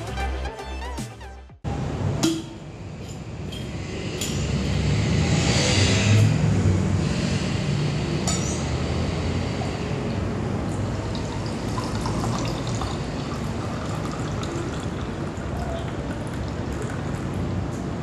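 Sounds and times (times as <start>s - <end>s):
beer pouring into a glass: 10.9s - 17.5s.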